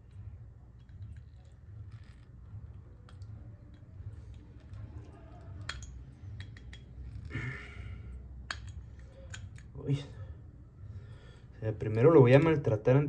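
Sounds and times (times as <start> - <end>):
metal tool clicking and scraping: 5.4 - 7.3, 8.4 - 9.7.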